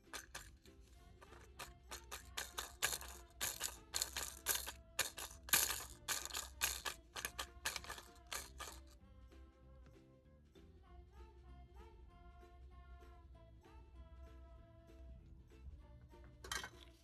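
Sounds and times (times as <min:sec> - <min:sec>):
plastic pieces rattling in jar: 0:00.0 - 0:09.0
toy juicer button clicking: 0:01.3 - 0:08.9.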